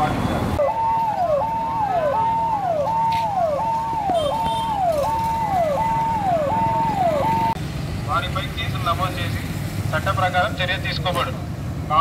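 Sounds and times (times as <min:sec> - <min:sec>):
police siren: 0:00.0 - 0:07.6.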